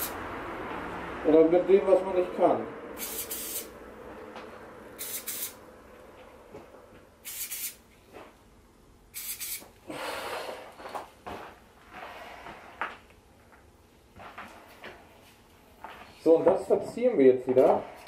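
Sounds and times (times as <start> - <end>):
spray can hissing: 3.0 - 3.7, 5.0 - 5.6, 7.2 - 7.8, 9.1 - 9.7.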